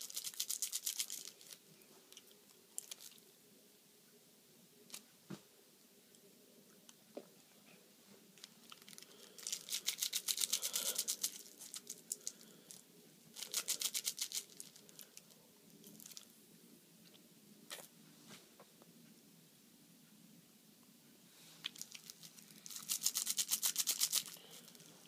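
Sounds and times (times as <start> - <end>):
candy roll crackling and crunching: 0.0 - 3.2, 8.4 - 16.3, 21.6 - 25.0.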